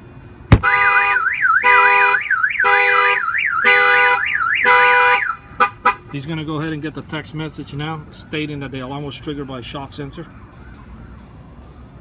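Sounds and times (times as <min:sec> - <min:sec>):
car alarm siren warbling: 0:00.6 - 0:05.4.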